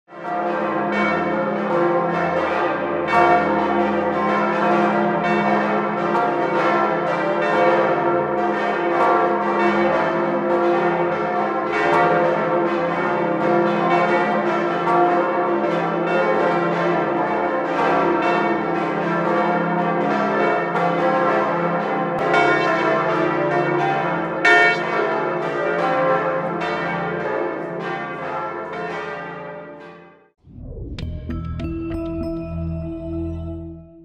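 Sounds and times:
church bells ringing: 0:00.1 - 0:30.3
deep bell hum: 0:30.5 - 0:34.0.

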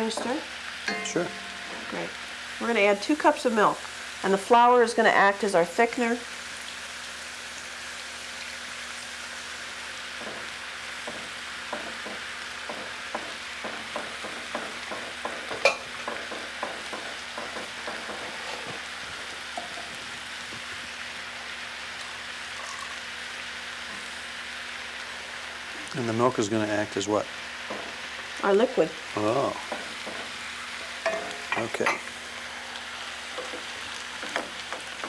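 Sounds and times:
pan sizzling: 0:00.0 - 0:35.0
wooden spoon knocking a pan: 0:10.2 - 0:18.8, 0:27.7 - 0:28.0, 0:29.6 - 0:30.4, 0:33.4 - 0:35.0.

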